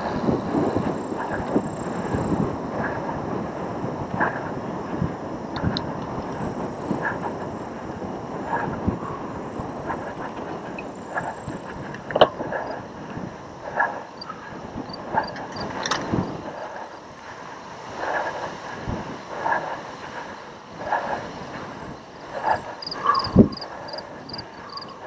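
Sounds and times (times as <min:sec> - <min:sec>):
wind and tyres rushing: 0:00.0 - 0:25.0
bike knocks and rattles: 0:11.7 - 0:12.6.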